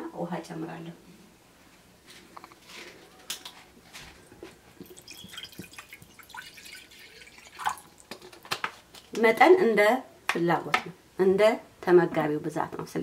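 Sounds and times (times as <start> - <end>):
water pouring into ceramic dish: 4.8 - 8.3
plastic bottle cap crackling: 7.2 - 9.2.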